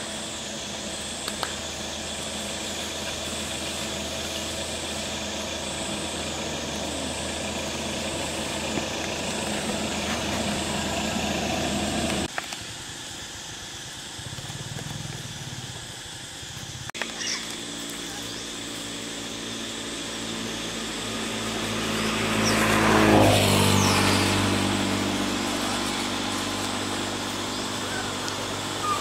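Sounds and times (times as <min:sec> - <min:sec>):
low hum: 0:00.0 - 0:12.3
pulsing high buzz: 0:00.0 - 0:29.0.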